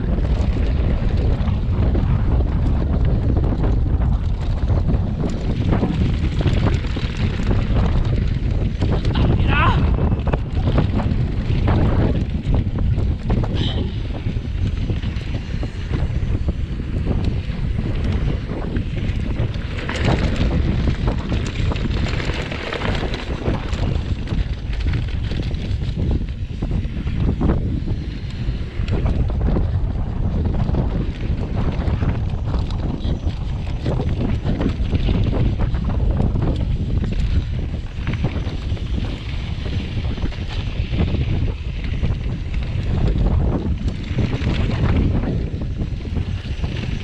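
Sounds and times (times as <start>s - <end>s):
low rumble: 0.0s - 47.0s
wind buffeting microphone: 0.0s - 47.0s
bike clicks and knocks: 10.2s - 29.6s.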